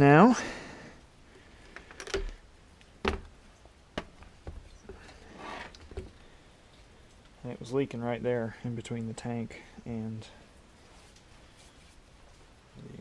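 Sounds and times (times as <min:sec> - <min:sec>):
soft rustle: 0:00.8 - 0:08.2, 0:10.2 - 0:13.0.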